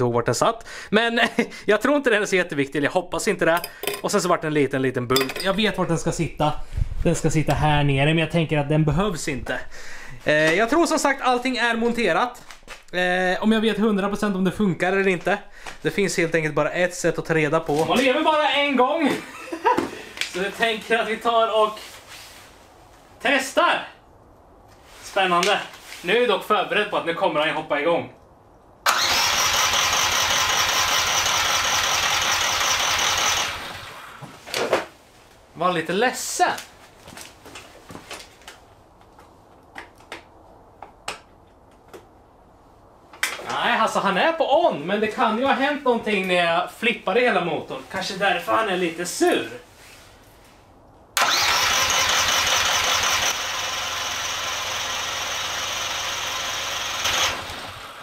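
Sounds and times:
electric starter cranking engine: 28.9 - 34.2, 51.2 - 58.0.

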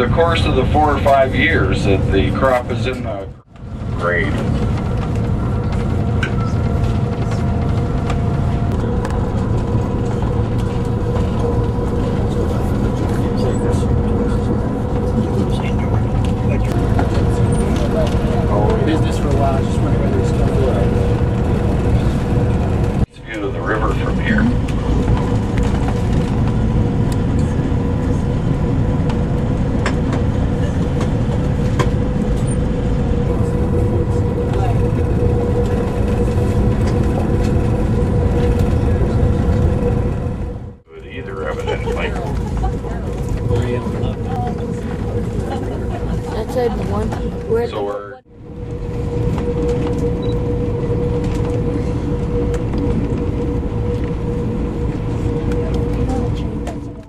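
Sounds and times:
constant droning tone: 0.0 - 57.0
steady hum: 0.0 - 57.0
train rumbling: 0.0 - 57.0.

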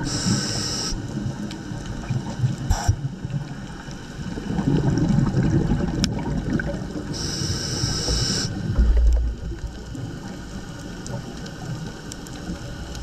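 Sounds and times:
regulator air hiss: 0.0 - 1.2, 2.7 - 3.0, 7.1 - 8.7
underwater exhaled bubbles: 0.0 - 13.0.

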